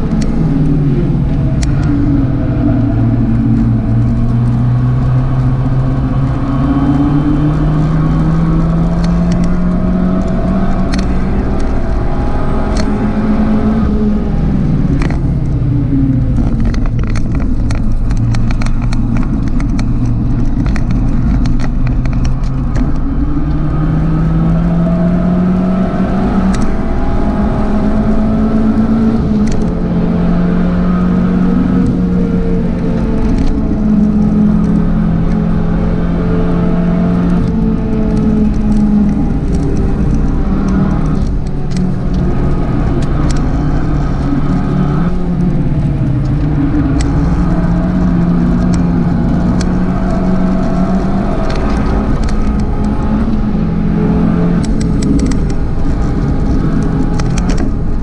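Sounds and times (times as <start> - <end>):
car engine running hard: 0.0 - 58.0
sharp clicks: 16.3 - 24.3, 37.1 - 58.0.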